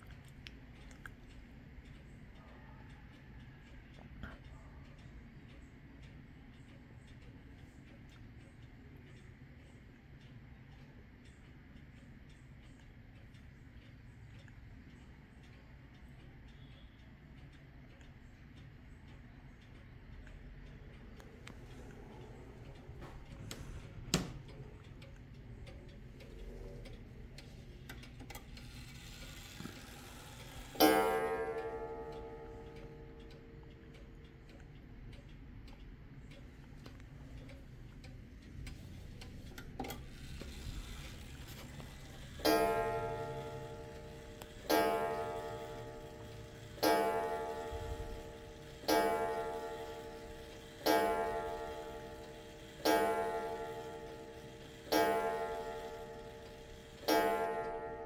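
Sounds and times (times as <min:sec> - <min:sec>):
pendulum clock ticking: 0:00.0 - 0:58.0
clock striking on gong: 0:29.3 - 0:33.4, 0:42.3 - 0:58.0.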